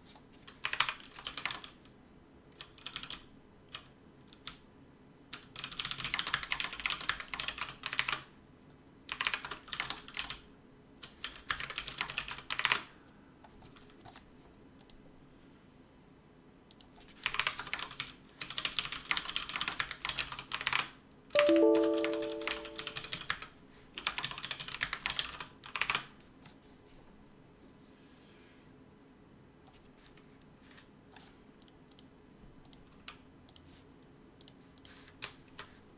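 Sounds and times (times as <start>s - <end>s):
computer keyboard typing: 0.5s - 1.8s, 2.6s - 4.6s, 5.3s - 8.3s, 9.1s - 10.4s, 11.0s - 12.9s, 16.7s - 26.1s
short electronic chime: 21.4s - 23.1s.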